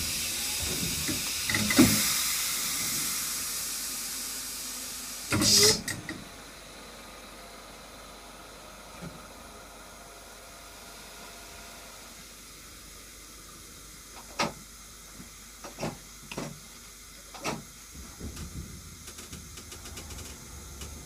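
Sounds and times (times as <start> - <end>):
train rumbling with quick clicks: 0.0 - 3.2, 17.3 - 21.0
train hissing: 0.0 - 6.0.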